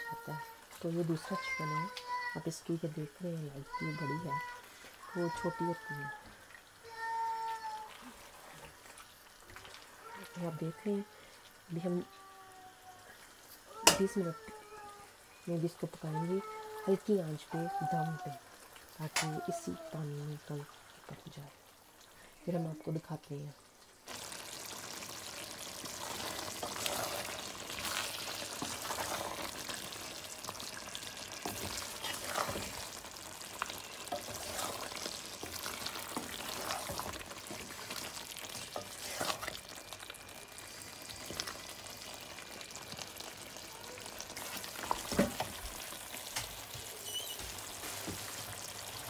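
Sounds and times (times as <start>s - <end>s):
curry sizzling in a pan: 0.0s - 49.0s.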